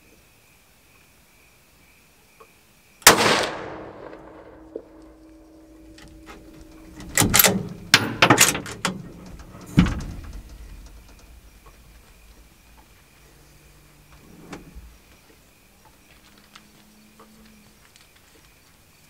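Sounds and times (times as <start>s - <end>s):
rifle shots echoing: 3.0s - 8.5s
sharp clicks and knocks: 4.0s - 13.0s.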